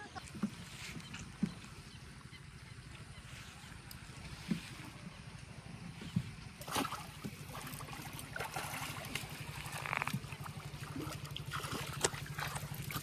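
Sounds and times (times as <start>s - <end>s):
steady low hum: 0.0s - 13.0s
fish splashing and thrashing in water: 6.1s - 13.0s.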